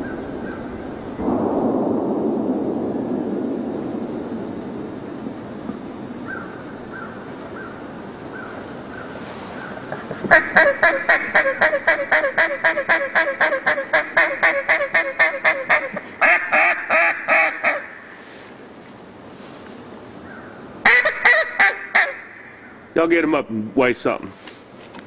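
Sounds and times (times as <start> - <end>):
duck call quacks: 10.2 - 18.0, 20.8 - 22.4.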